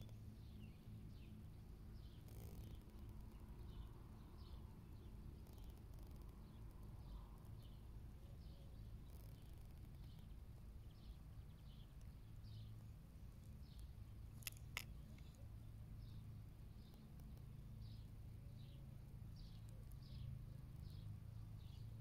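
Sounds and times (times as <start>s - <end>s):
sharp clicks: 13.8s - 15.4s.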